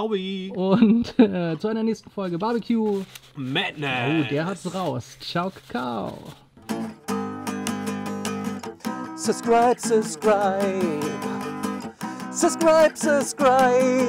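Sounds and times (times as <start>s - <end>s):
acoustic guitar strumming: 6.5s - 14.0s
man singing: 9.2s - 14.0s.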